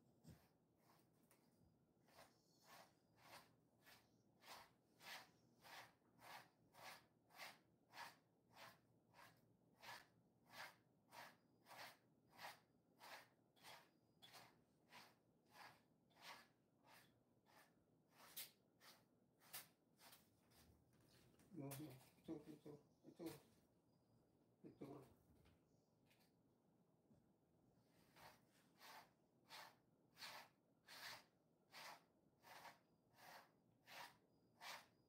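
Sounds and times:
brush strokes through dog fur: 0.1s - 20.7s, 28.0s - 35.0s.

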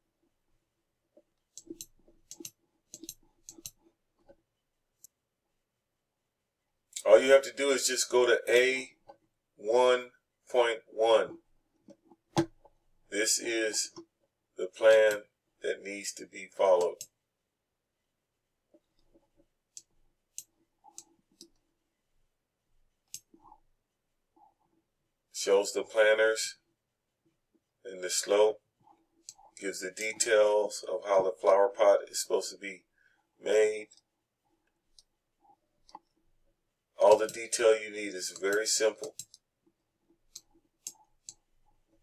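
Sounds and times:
computer mouse clicking: 1.5s - 4.4s, 37.1s - 37.5s, 38.4s - 39.4s, 40.3s - 42.0s.

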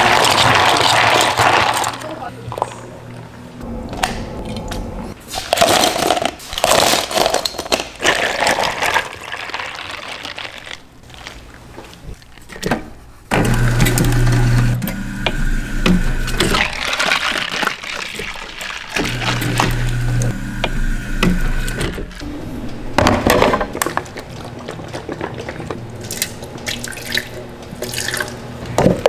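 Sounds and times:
cup-sealing machine humming: 13.3s - 16.8s, 19.0s - 23.0s.

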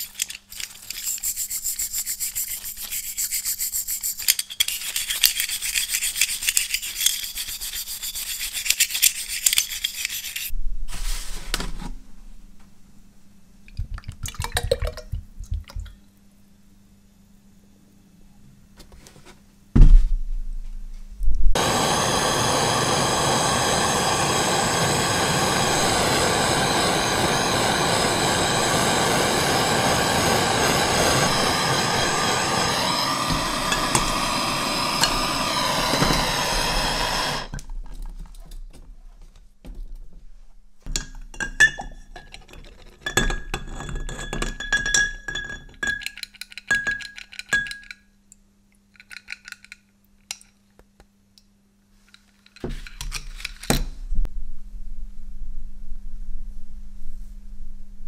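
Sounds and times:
gas torch hissing: 21.6s - 37.6s.

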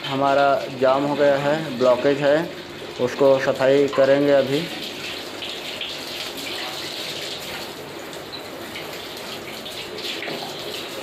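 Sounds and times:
water splashing onto tiled floor: 3.0s - 11.0s.

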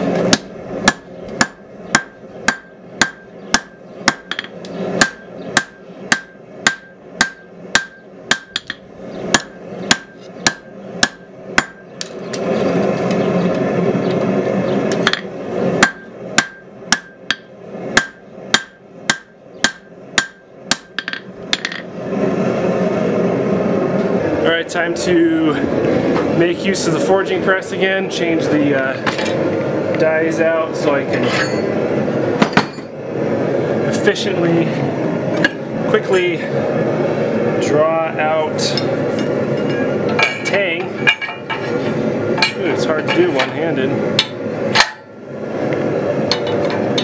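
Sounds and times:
hammer striking steel on anvil: 0.2s - 11.9s, 15.0s - 21.8s, 31.3s - 31.7s, 44.2s - 45.1s
steady rushing noise: 20.8s - 47.0s.

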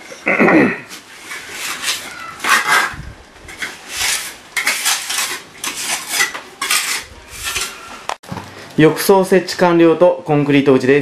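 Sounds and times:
rubble and tools clinking: 0.9s - 8.2s.

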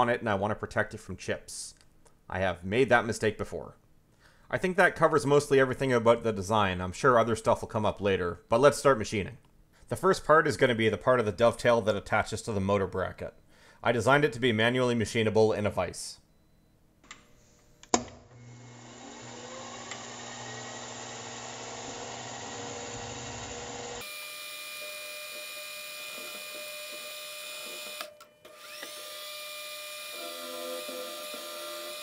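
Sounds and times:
milling spindle whine: 18.4s - 32.0s.

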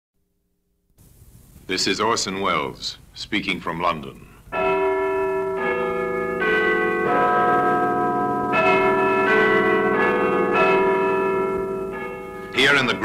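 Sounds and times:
large bells chiming: 4.5s - 13.0s.

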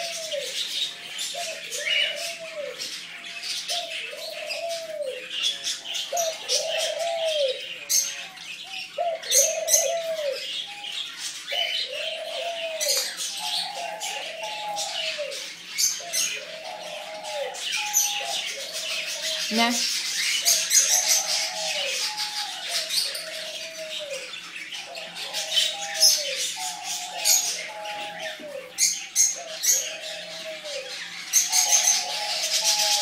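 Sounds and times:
birds chirping and twittering: 0.0s - 33.0s.

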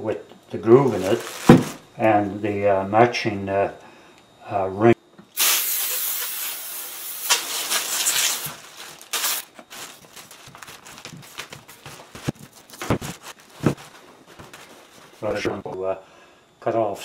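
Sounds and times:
plastic sheeting crinkling: 0.8s - 1.8s, 7.3s - 15.5s
aerosol spray can hissing: 5.4s - 8.5s, 9.2s - 9.4s.

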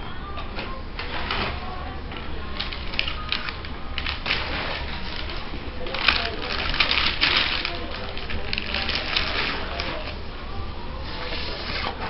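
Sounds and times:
faint background music: 0.0s - 12.0s
paper rustling and crinkling: 2.6s - 10.2s.

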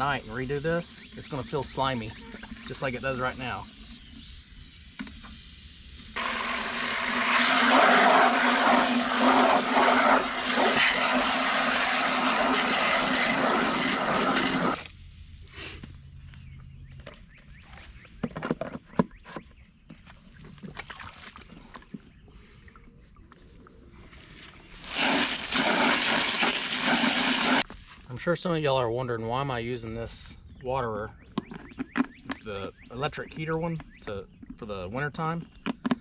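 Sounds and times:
hose spraying water into plastic: 0.0s - 14.9s, 24.7s - 27.7s.

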